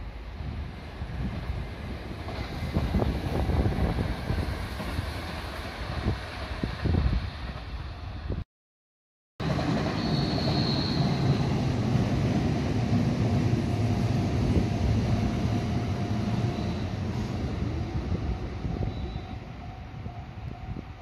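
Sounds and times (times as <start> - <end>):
train wheels rumbling on rails: 0.0 - 8.4, 9.4 - 21.0.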